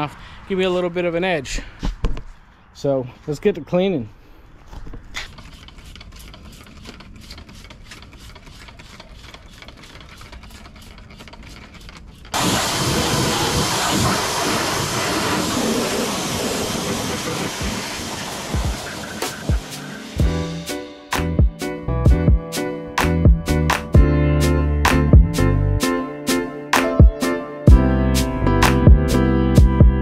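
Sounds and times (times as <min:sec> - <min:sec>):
pump motor: 0:05.5 - 0:20.2
pressure washer water jet hissing: 0:12.3 - 0:20.2.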